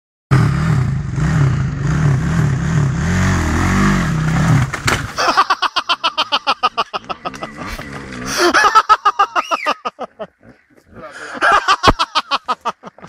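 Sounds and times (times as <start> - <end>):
dirt bike engine revving: 0.3 - 9.4
bike crashing knock: 4.2 - 5.5.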